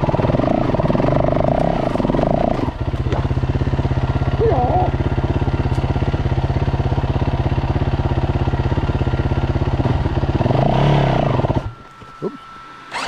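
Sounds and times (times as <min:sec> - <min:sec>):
engine revving: 0:00.0 - 0:03.2, 0:09.7 - 0:11.8
dirt bike engine idling: 0:00.0 - 0:13.0.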